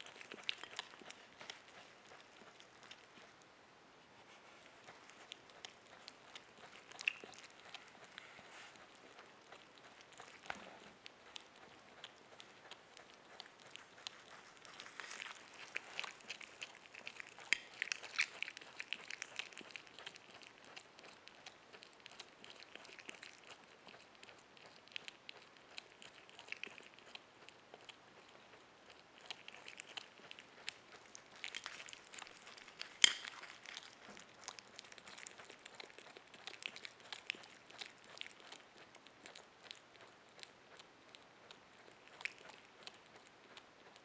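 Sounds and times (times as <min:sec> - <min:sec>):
animal chewing wetly: 0:00.0 - 0:44.0.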